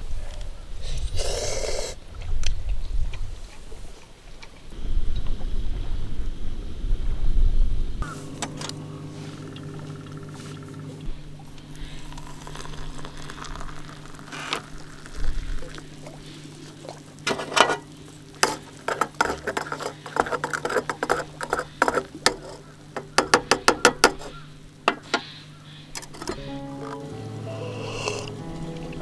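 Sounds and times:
water pouring into metal mug: 11.7s - 22.6s.

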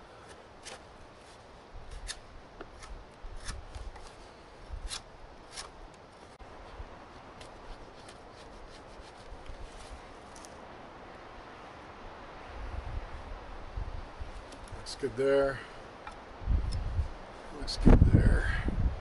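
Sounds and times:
knife scraping wood: 0.2s - 6.4s, 7.4s - 10.6s
wind rumble on microphone: 11.8s - 14.9s, 16.3s - 19.0s.

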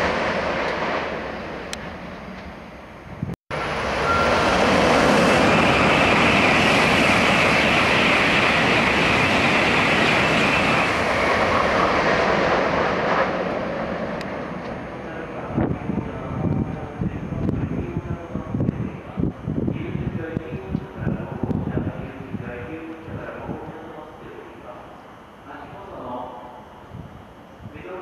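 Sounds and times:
bullet train passing: 0.0s - 28.0s.

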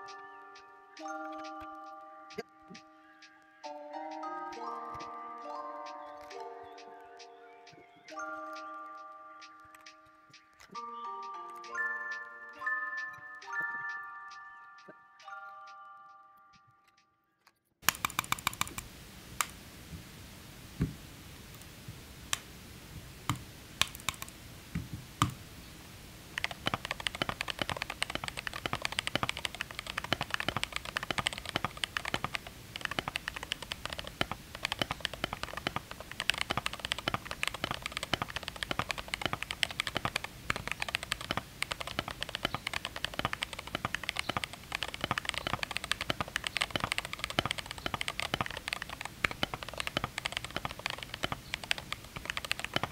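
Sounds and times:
mechanical keyboard typing: 1.0s - 2.5s, 4.1s - 14.0s, 17.8s - 18.9s, 23.8s - 24.3s, 26.4s - 52.9s.

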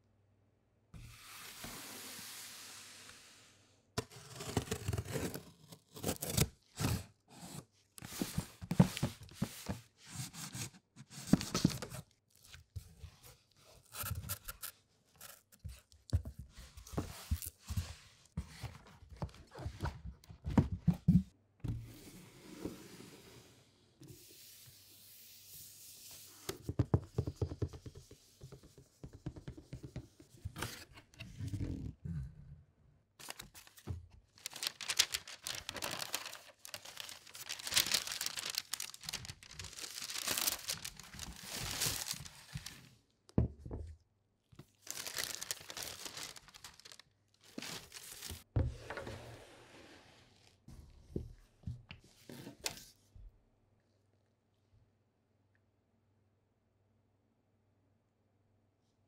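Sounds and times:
cardboard scraping and tearing: 4.0s - 7.1s, 34.4s - 42.8s, 44.8s - 48.4s.

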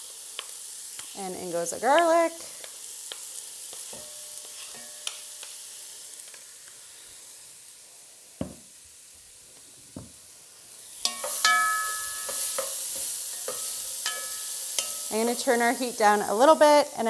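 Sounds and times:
vegetables sizzling in oil: 0.0s - 17.0s
wooden spoon stirring pot: 11.0s - 15.1s.

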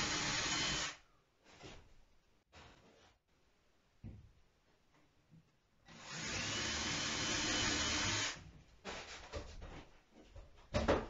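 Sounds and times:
cordless drill whine: 0.0s - 1.0s, 5.9s - 8.4s.

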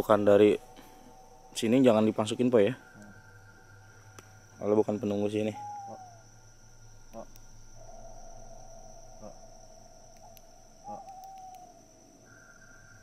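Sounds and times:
crickets trilling: 0.0s - 13.0s
low steady tone: 0.0s - 13.0s
faint short clicks: 10.2s - 11.7s.

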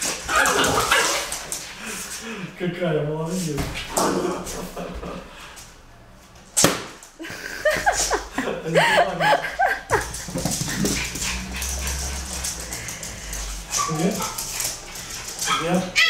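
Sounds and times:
sharp smack: 6.6s - 7.0s
dog yipping and whining: 15.5s - 16.0s.

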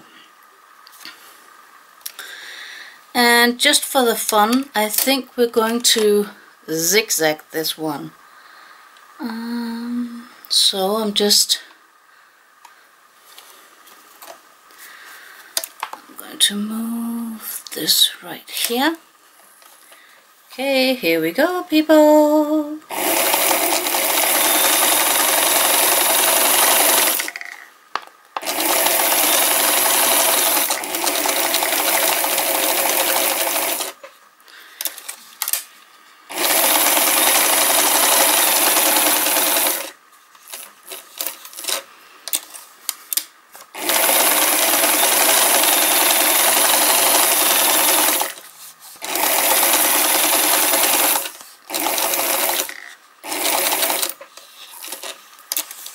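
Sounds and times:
sewing machine stitching: 22.9s - 27.5s, 28.4s - 34.0s, 36.3s - 41.8s, 43.8s - 48.4s, 49.0s - 54.2s, 54.8s - 55.2s.

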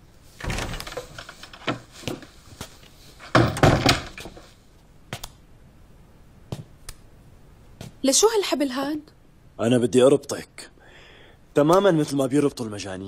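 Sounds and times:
door thudding shut: 0.4s - 1.8s, 3.3s - 4.4s
wooden door opening and closing: 0.4s - 2.3s, 3.2s - 4.5s.

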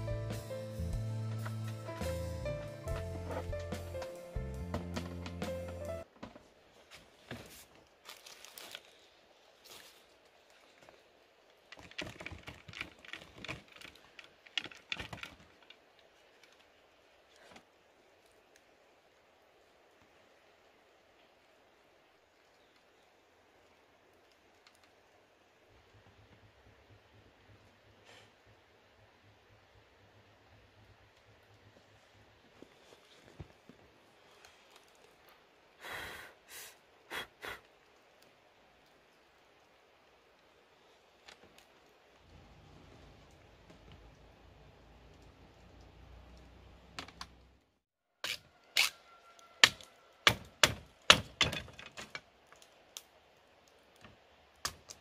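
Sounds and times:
hand rustling on a leaf: 6.5s - 14.2s, 31.8s - 35.7s
larvae pattering onto a leaf: 7.5s - 18.7s.

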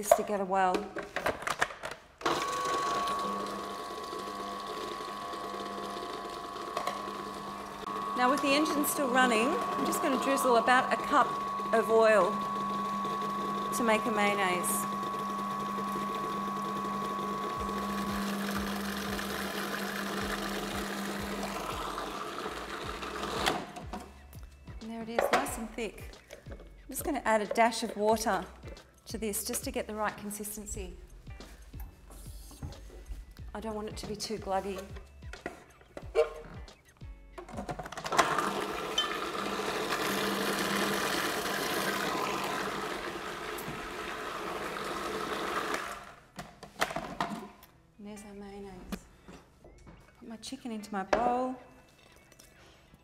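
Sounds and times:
food processor motor humming: 2.2s - 23.8s, 38.1s - 46.2s.

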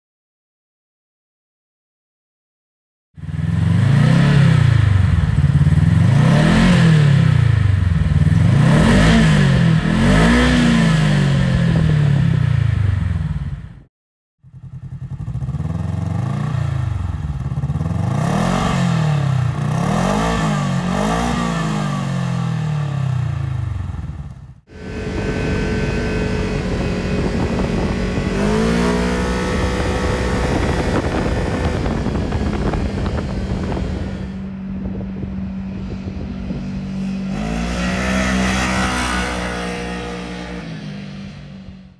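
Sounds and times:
engine revving: 3.2s - 13.8s, 14.6s - 41.9s
wind noise: 3.5s - 13.8s, 23.4s - 41.9s.

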